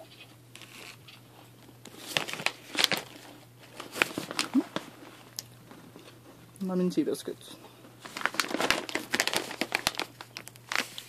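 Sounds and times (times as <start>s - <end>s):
snack bag crinkling: 1.9s - 6.2s, 8.0s - 11.0s.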